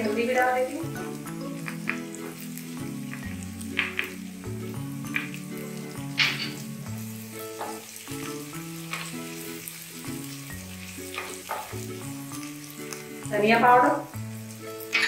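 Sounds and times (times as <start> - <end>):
soft instrumental music: 0.0 - 15.0
spices sizzling in hot ghee: 0.0 - 15.0.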